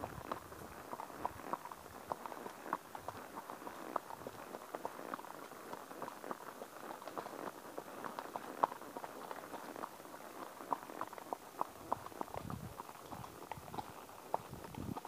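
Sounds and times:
horse hooves on forest path: 0.0 - 15.0.

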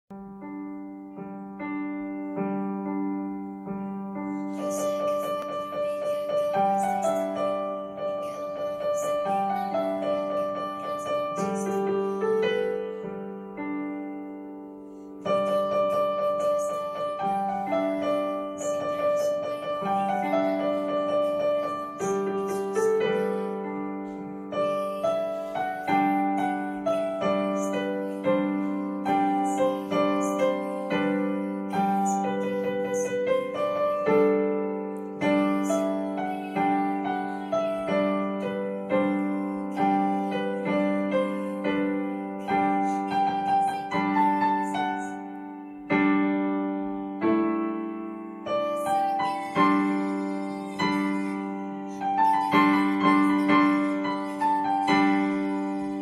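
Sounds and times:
digital piano slow melody: 0.1 - 56.0.

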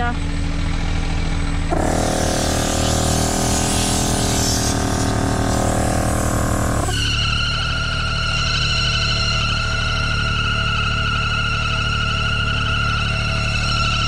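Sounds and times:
engines idling: 0.0 - 7.5
distorted guitar music: 1.7 - 7.1
air hissing: 1.7 - 7.2
air compressor buzzing: 1.7 - 7.4.

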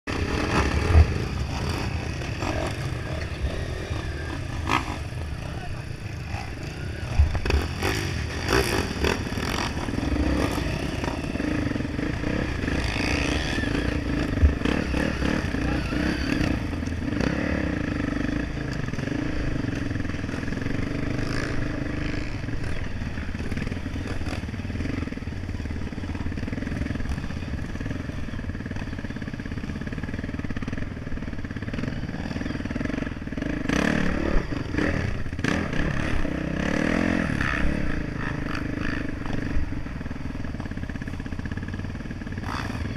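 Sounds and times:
motorcycle engine running: 0.0 - 42.9.

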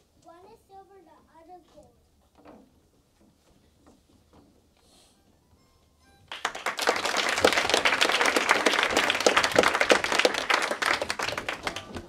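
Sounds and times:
audience applause: 6.3 - 12.0.

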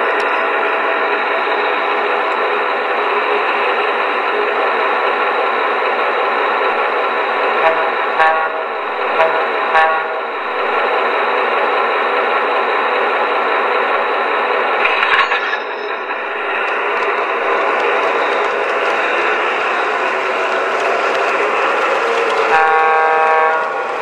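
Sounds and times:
wheel and track clatter: 10.4 - 24.0.

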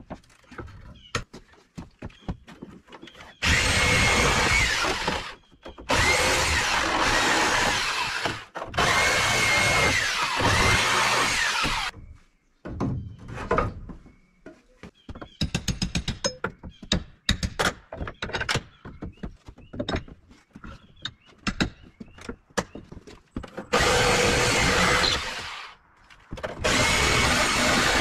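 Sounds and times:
wood and tools knocking: 0.0 - 28.0
power drill running: 3.4 - 11.9, 23.7 - 25.7, 26.6 - 28.0.

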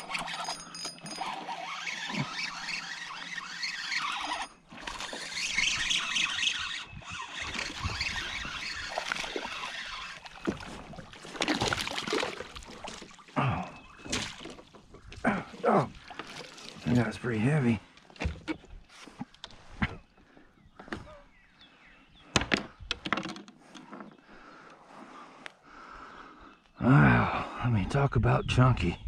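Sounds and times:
fishing reel cranking: 0.0 - 10.4
fish splashing: 1.2 - 16.9.

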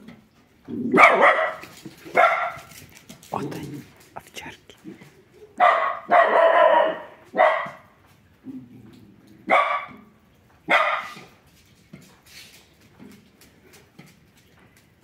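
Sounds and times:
dog barking: 0.9 - 2.7, 5.6 - 7.9, 9.5 - 10.1, 10.7 - 11.3.

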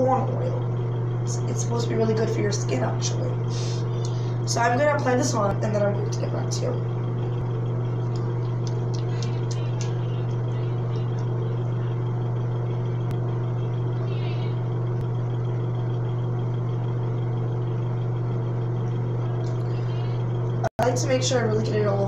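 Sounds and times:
low motor hum: 0.0 - 22.0.

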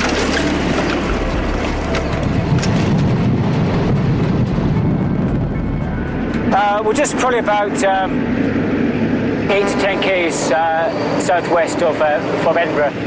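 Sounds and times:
rattles and knocks: 0.0 - 6.5
truck engine rumbling: 0.0 - 13.0.

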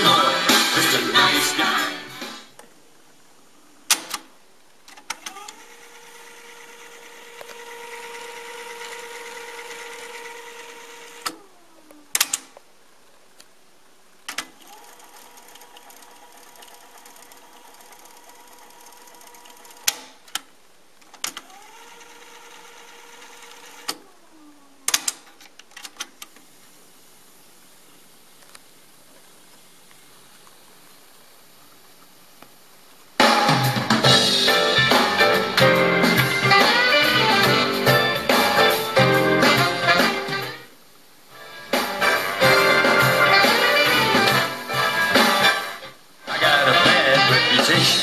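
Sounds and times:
tape fast-winding whine: 5.3 - 11.5.

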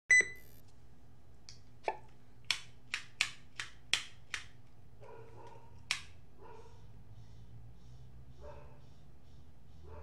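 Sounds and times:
electronic beep: 0.1 - 0.6.

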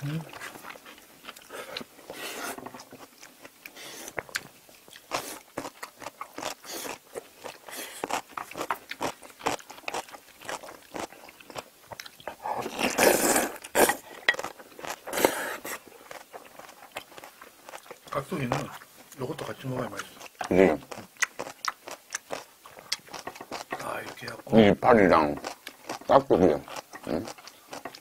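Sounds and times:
crunching and wet chewing: 0.2 - 28.0
loud noodle slurping: 12.5 - 14.1.

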